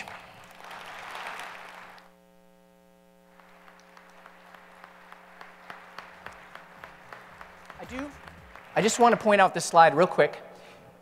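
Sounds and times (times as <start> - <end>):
audience applauding faintly: 0.0 - 2.1, 3.3 - 10.2.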